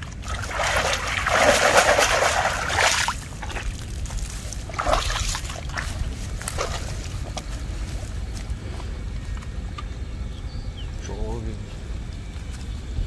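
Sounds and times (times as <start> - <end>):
water splashing and streaming: 0.0 - 7.1
light crackles and rustles: 3.3 - 9.9.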